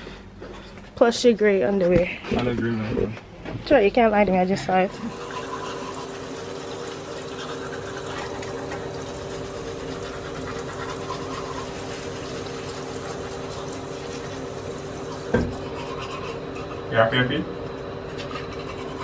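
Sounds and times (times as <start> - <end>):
constant low hum: 0.0 - 19.0
teeth being brushed: 9.9 - 12.1, 18.1 - 19.0.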